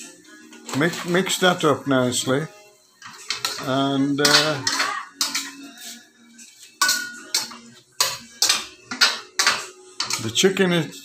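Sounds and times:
metal spoon scraping a wok: 3.0s - 6.0s, 6.7s - 10.4s.

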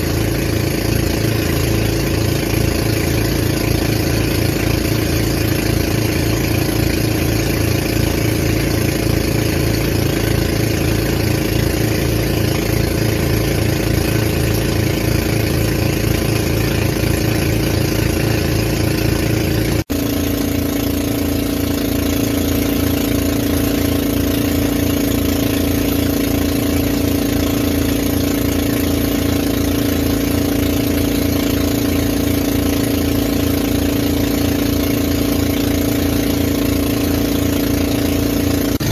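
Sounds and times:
boat engine running: 0.0s - 38.9s.

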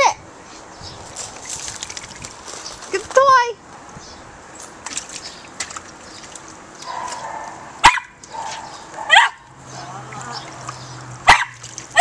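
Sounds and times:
splashing in shallow water: 1.2s - 3.0s, 4.7s - 8.7s, 9.6s - 12.0s
small dog barking: 6.8s - 10.0s, 11.2s - 12.0s.

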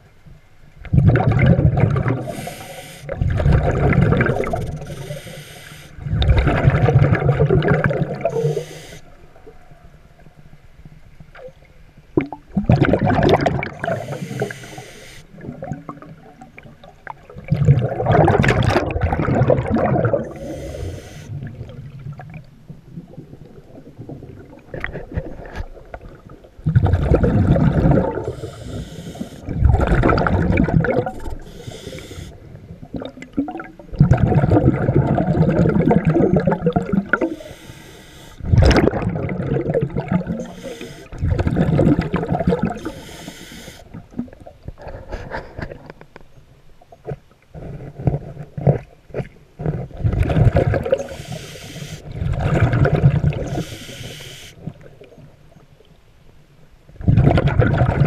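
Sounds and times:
bubbling exhaled air: 0.9s - 9.1s, 12.2s - 22.4s, 23.0s - 45.9s, 49.9s - 54.8s, 57.0s - 58.0s
hissing inhales: 2.2s - 3.2s, 4.4s - 6.0s, 8.3s - 9.1s, 13.9s - 15.3s, 20.3s - 21.3s, 28.2s - 29.5s, 31.3s - 32.4s, 37.3s - 38.4s, 40.4s - 41.2s, 42.8s - 43.9s, 51.0s - 52.0s, 53.5s - 54.6s.

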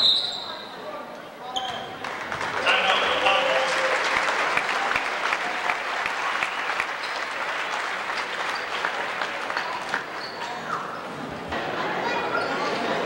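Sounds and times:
spectators applauding: 2.0s - 10.2s.

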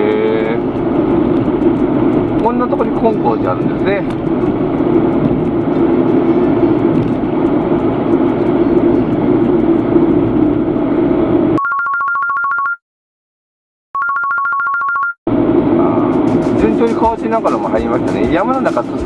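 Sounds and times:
car cabin road and engine noise: 0.0s - 11.6s, 15.3s - 19.0s
two-tone telephone ring: 11.6s - 12.8s, 14.0s - 15.2s.

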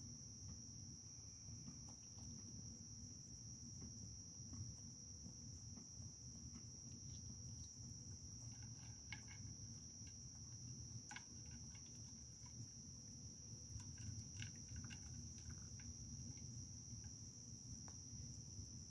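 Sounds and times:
crickets chirping: 0.0s - 18.9s
raccoon feeding at a dish: 4.5s - 18.9s.

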